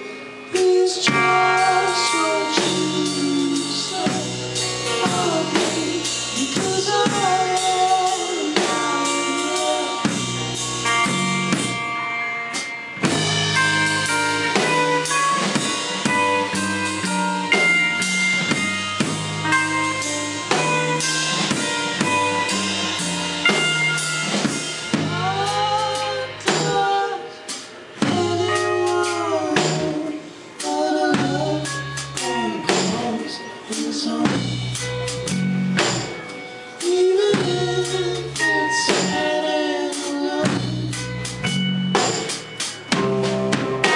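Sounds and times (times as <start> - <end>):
drum kit: 0.0 - 43.9
electric guitars: 0.0 - 43.9.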